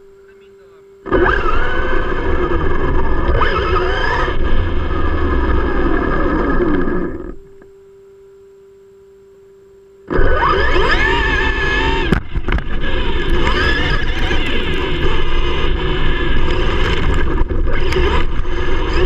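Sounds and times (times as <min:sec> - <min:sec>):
electric motor whining: 0:01.0 - 0:07.7, 0:10.0 - 0:19.0
tyre and ground noise: 0:10.1 - 0:19.0.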